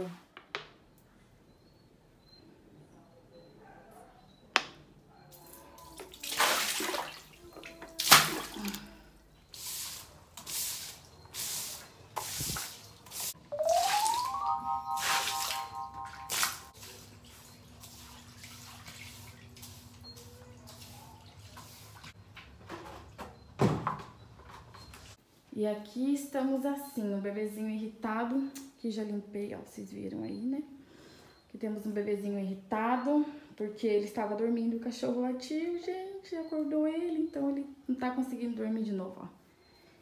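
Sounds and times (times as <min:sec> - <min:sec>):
water sloshing: 0:05.9 - 0:09.1, 0:15.2 - 0:22.1
broom scrubbing wet tiled floor: 0:09.5 - 0:22.2
rising tone: 0:13.5 - 0:16.7.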